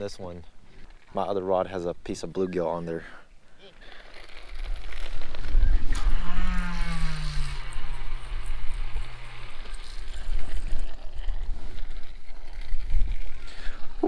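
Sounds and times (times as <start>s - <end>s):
fishing reel spool whirring: 4.8s - 14.0s.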